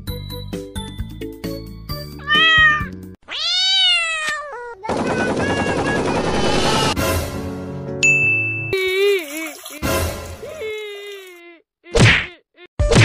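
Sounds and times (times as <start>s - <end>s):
cat meowing: 2.2s - 4.9s
machine-gun fire: 4.9s - 7.0s.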